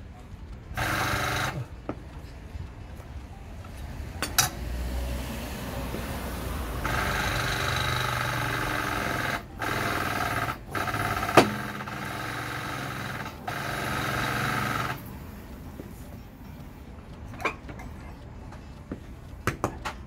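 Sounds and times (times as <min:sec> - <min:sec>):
foot pump humming: 0:00.6 - 0:02.2, 0:06.8 - 0:16.8.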